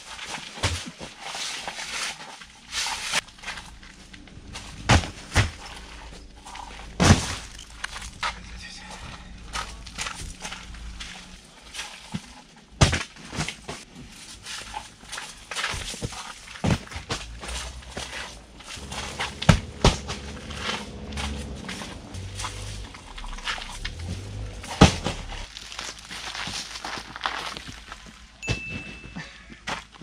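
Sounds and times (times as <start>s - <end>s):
footsteps: 2.9s - 12.5s, 13.4s - 30.0s
plastic crates thudding down: 7.0s - 7.5s.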